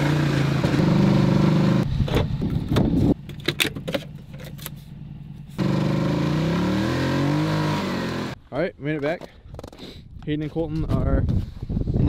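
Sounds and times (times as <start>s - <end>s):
atv engine running: 0.0s - 8.4s.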